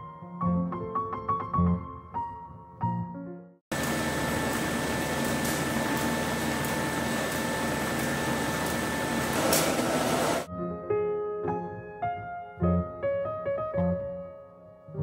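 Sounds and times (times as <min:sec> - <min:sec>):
machine whirring: 0:03.7 - 0:10.5.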